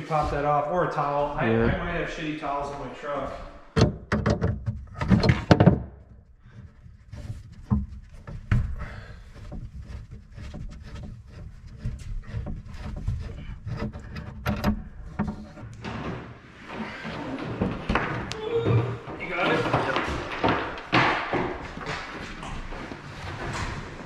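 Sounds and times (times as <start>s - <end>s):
knocks and clatter of pipe fittings: 3.7s - 18.4s, 19.0s - 24.0s.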